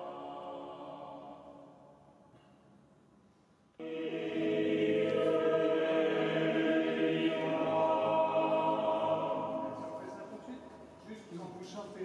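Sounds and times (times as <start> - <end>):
choir singing sustained chords: 0.0 - 2.2, 3.8 - 11.0.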